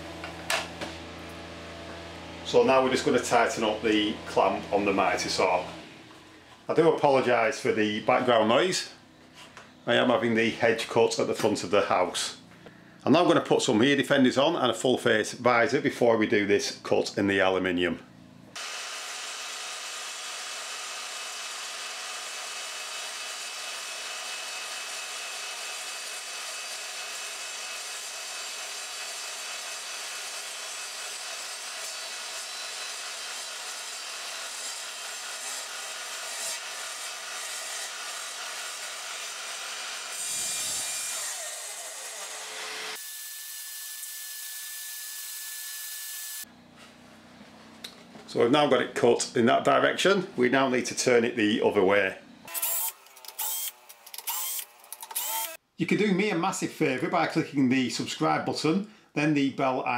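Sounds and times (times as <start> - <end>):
vacuum cleaner whine: 0.0 - 6.3
mitre saw cutting metal: 0.2 - 6.0, 18.6 - 46.5, 52.5 - 55.6.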